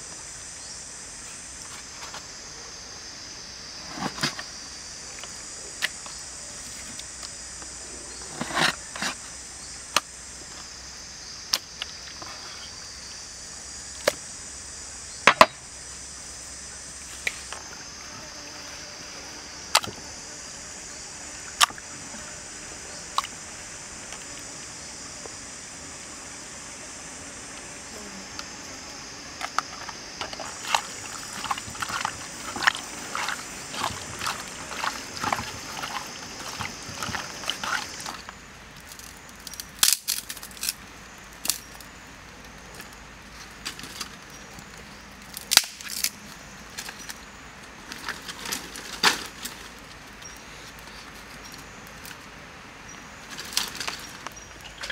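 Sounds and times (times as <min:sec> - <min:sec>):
high insect drone: 0:00.0 - 0:54.9.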